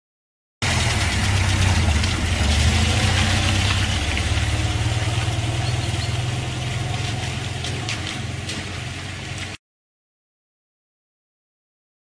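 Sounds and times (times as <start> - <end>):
engine running steadily: 0.6 - 9.6.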